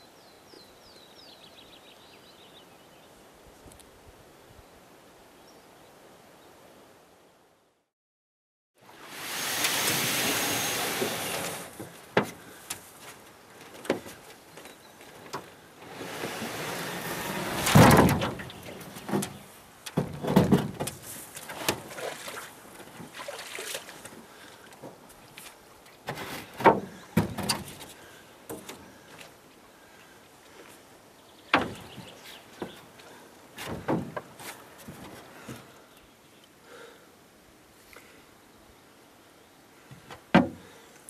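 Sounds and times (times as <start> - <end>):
canoe hull scraping: 9.8 - 14.2, 15.1 - 29.3, 31.6 - 35.7
canoe hull knocking: 33.6 - 34.4, 40.4 - 40.7.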